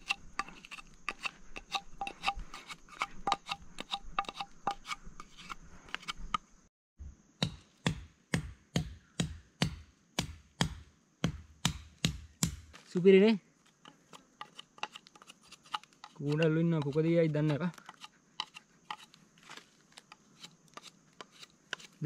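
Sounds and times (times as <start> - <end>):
knife chopping wood: 7.4 - 12.8, 13.9 - 19.1, 20.0 - 22.0.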